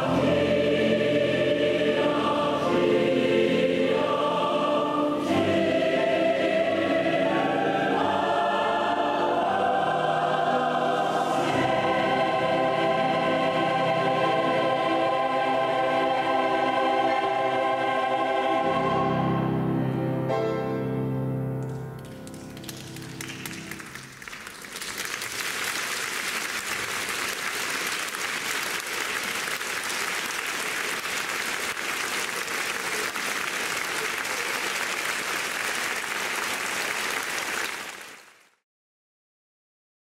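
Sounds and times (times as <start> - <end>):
choir singing with piano: 0.0 - 21.2
audience applause: 22.0 - 38.6.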